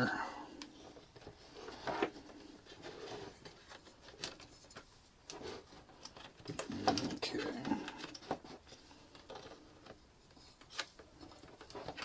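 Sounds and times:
plastic case clicks and scrapes: 0.6 - 10.0, 10.6 - 12.0.

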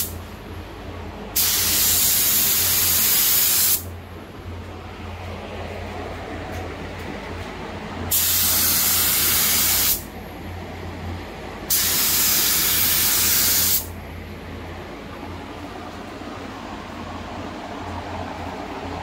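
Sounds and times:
ventilation fan hum: 0.0 - 19.0
spray gun air hiss: 1.4 - 3.9, 8.1 - 10.1, 11.7 - 13.9.

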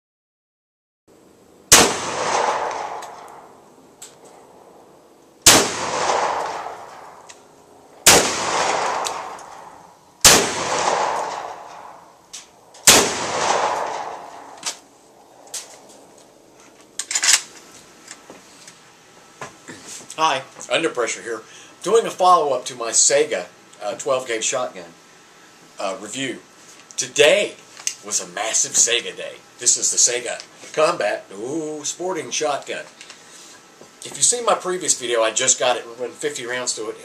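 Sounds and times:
shotgun shots: 1.7 - 3.5, 5.4 - 7.3, 8.0 - 12.1, 12.8 - 14.8.

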